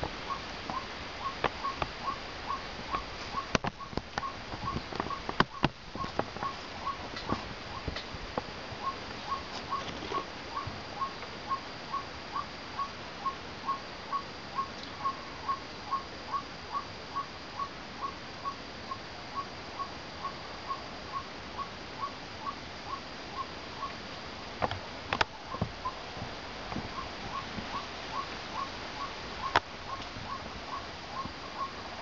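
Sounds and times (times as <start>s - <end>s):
bird calling: 0.0s - 24.0s, 25.2s - 26.1s, 26.7s - 32.0s.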